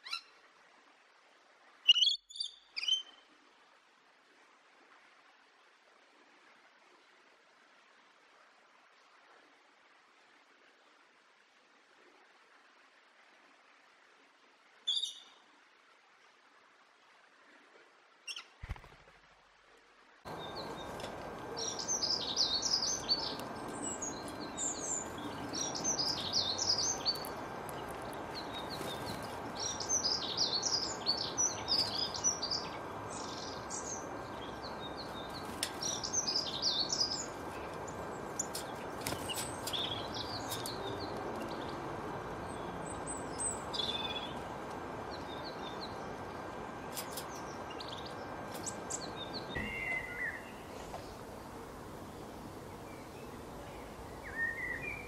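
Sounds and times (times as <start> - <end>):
steady background hiss: 2.8 - 55.0
small birds chirping: 20.3 - 55.0.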